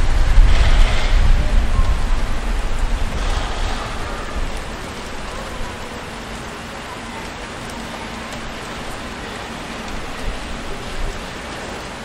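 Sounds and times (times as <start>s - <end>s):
steady traffic hiss: 0.0s - 12.0s.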